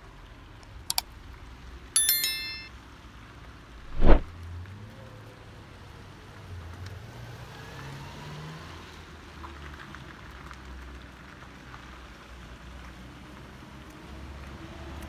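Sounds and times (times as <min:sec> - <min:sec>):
tyres hissing on wet road: 0:04.5 - 0:15.0.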